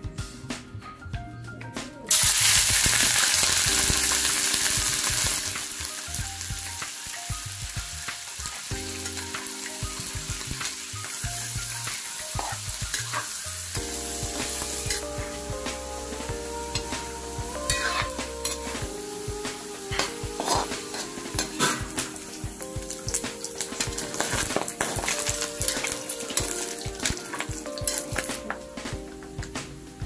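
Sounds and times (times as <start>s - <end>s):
meat sizzling in a wok: 2.1s - 28.5s
spatula scraping a wok: 17.6s - 18.8s.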